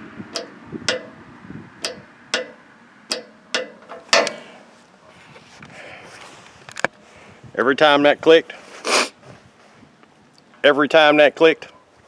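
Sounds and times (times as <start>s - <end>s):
torque wrench clicking: 1.8s - 4.4s.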